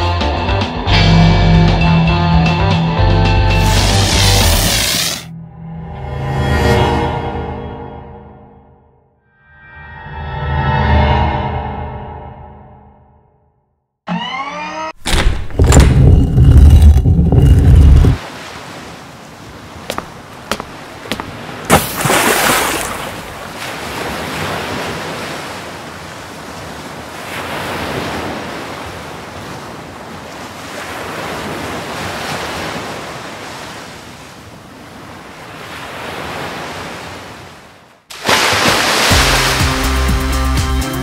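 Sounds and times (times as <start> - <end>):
ocean surf breaking: 17.9 - 40.1.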